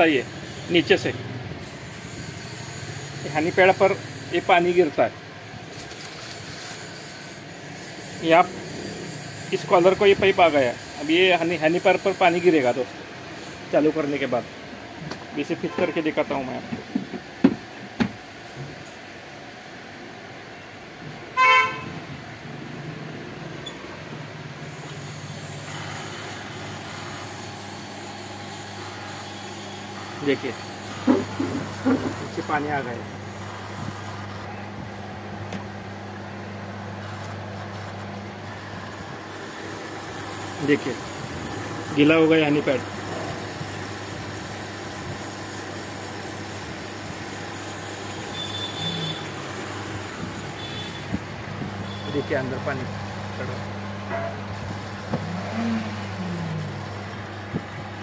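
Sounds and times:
air cooler motor hum: 0.0s - 58.0s
short loud squeak: 48.3s - 49.3s.

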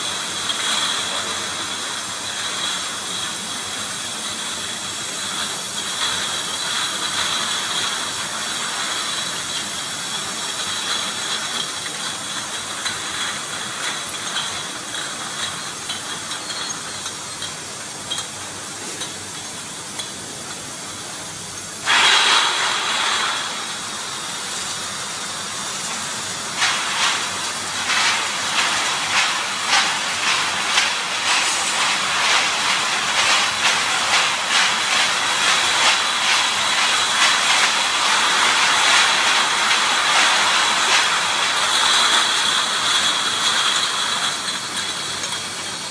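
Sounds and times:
machine hum with high whine: 0.0s - 45.9s
glass bottles clinking together: 10.7s - 20.1s
short loud hiss: 21.8s - 23.9s.

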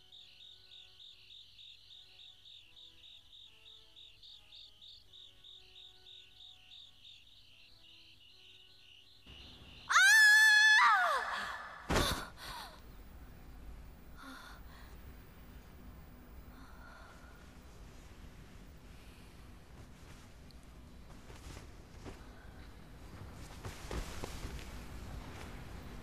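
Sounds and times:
woman gasping: 11.0s - 12.8s
woman breathing: 11.0s - 13.0s, 14.1s - 15.3s, 16.4s - 18.2s
clothing rustling: 17.4s - 26.0s
soft thuds of movement: 19.3s - 26.0s.

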